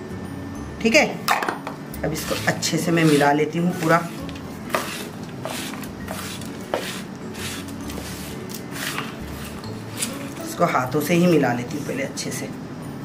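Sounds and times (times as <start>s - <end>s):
spatula scraping dry mix in pan: 2.1s - 10.7s.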